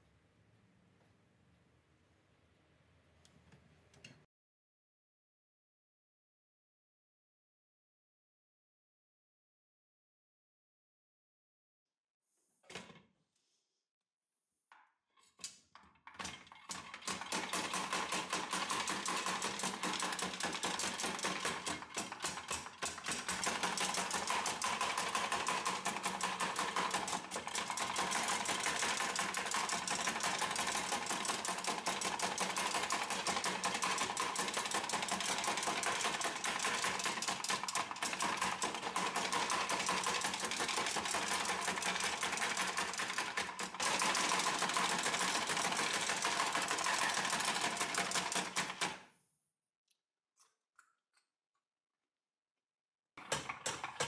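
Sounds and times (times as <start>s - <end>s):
hand-cranked food chopper clattering: 16.2s - 49.0s, 53.2s - 54.0s.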